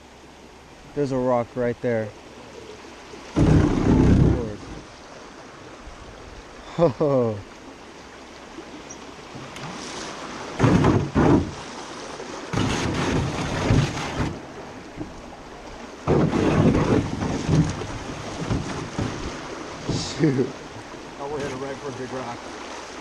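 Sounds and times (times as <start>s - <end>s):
rushing river water: 0.0s - 23.0s
loud splashing bursts: 3.3s - 4.8s, 10.1s - 14.6s, 16.0s - 20.1s
wind buffeting microphone: 3.4s - 4.9s.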